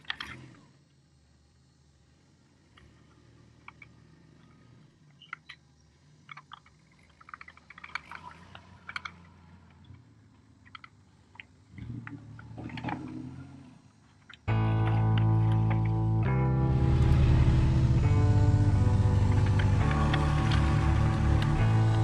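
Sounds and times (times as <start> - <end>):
plastic parts clicking and rattling: 0.0 - 0.6, 3.6 - 13.2.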